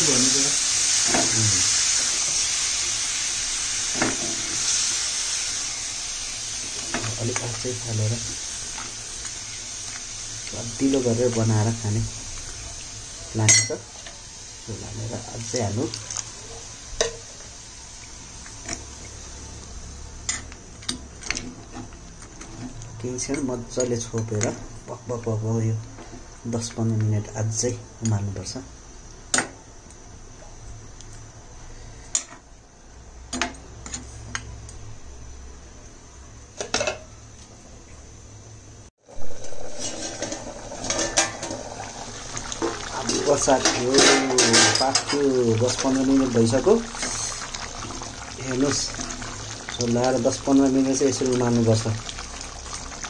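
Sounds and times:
metal lid clattering: 0:39.4 - 0:41.7, 0:42.6 - 0:45.3.

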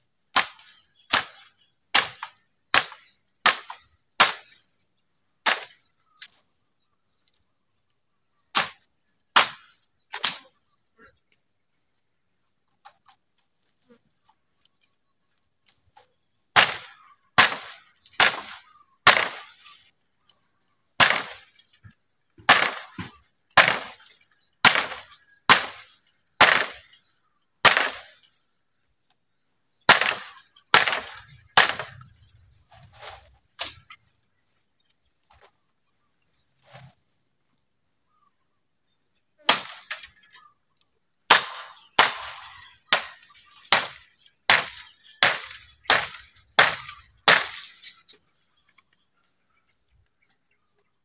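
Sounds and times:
blade chopping bamboo: 0:00.4 - 0:04.6, 0:16.6 - 0:19.6, 0:21.0 - 0:21.5, 0:22.5 - 0:24.0, 0:24.6 - 0:26.9, 0:27.6 - 0:28.1, 0:29.9 - 0:32.0, 0:39.5 - 0:40.1, 0:41.3 - 0:47.8.

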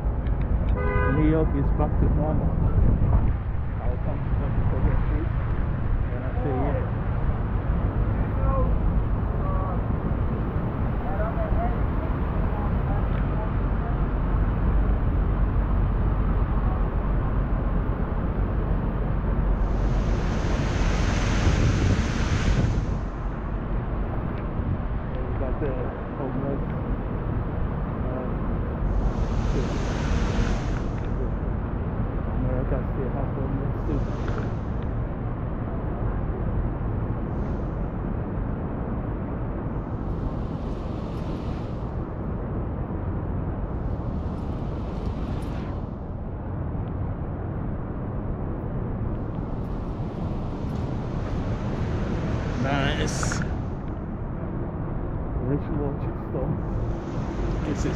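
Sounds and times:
wind buffeting microphone: 0:00.0 - 0:57.9
rain hissing: 0:19.6 - 0:23.5, 0:28.8 - 0:31.4, 0:33.8 - 0:34.9, 0:39.6 - 0:42.4, 0:43.5 - 0:46.1, 0:49.2 - 0:54.2, 0:56.6 - 0:57.9.

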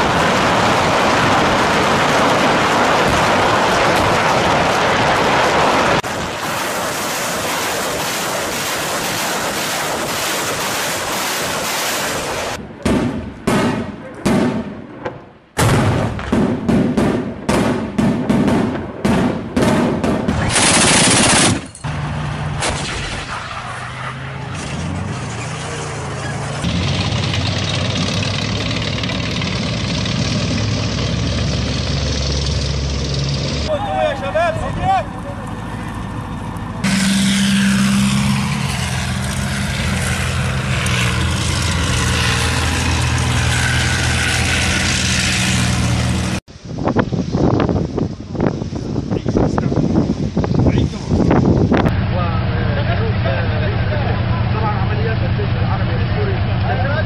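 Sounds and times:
anti-aircraft gun burst: 0:00.0 - 0:15.0, 0:15.6 - 0:21.8
rocket launcher blasts: 0:00.0 - 0:21.8, 0:22.5 - 0:25.6
heavy vehicle engine running: 0:20.6 - 0:22.8, 0:23.6 - 0:47.4, 0:51.6 - 0:57.0.

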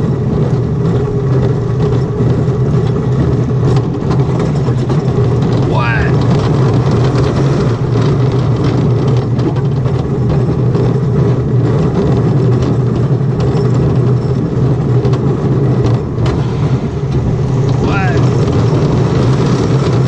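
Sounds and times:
roller coaster rolling on track: 0:00.0 - 0:20.0.

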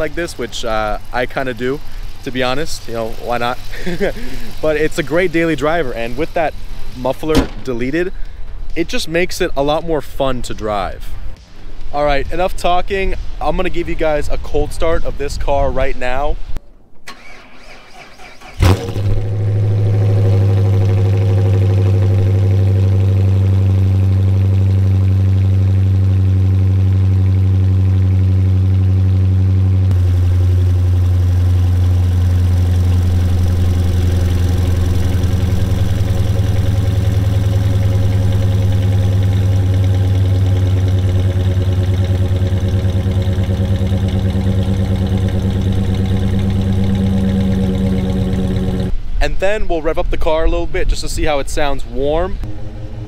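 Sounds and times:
car engine idling: 0:00.0 - 0:08.6, 0:17.1 - 0:49.0, 0:52.5 - 0:53.0.

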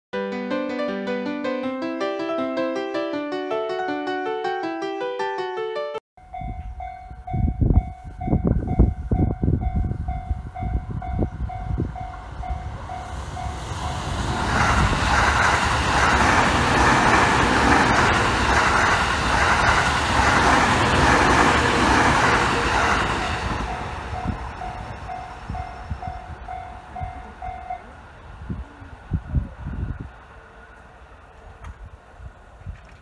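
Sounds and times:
train wheels rushing on rails: 0:08.4 - 0:32.6
level crossing bell ringing: 0:23.6 - 0:28.0.

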